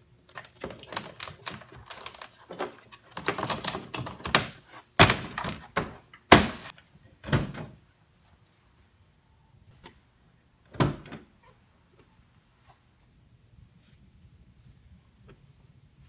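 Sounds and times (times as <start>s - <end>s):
clicks taps and rustles: 0.3s - 6.8s.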